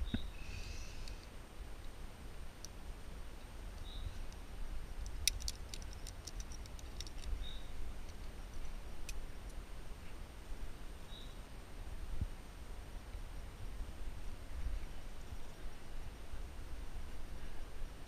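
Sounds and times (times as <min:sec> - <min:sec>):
carabiners clicking: 0:05.1 - 0:08.7.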